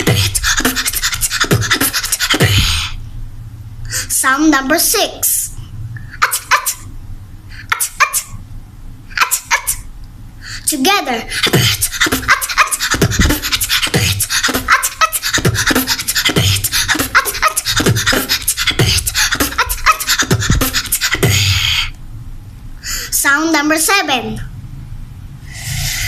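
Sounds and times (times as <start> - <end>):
girl beatboxing: 0.0 - 3.0, 3.9 - 6.9, 7.5 - 8.4, 9.1 - 9.9, 10.5 - 22.0.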